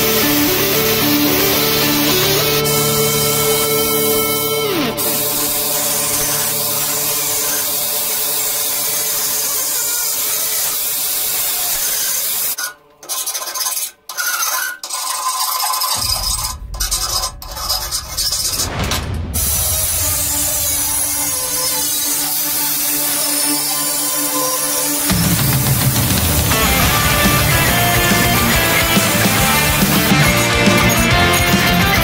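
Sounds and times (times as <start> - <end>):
angle grinder grinding steel: 0.0 - 18.8, 19.4 - 32.0
hand file rasping on steel: 8.4 - 16.3.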